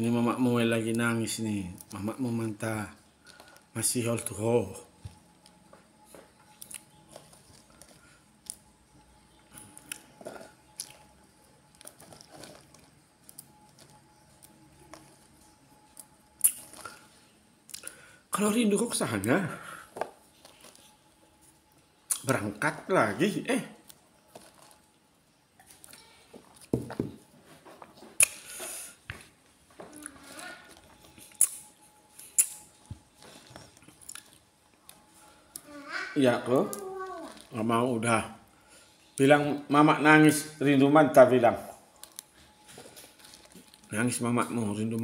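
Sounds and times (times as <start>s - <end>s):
fingers crunching a vegetable: 9.5s - 17.1s, 30.0s - 35.1s.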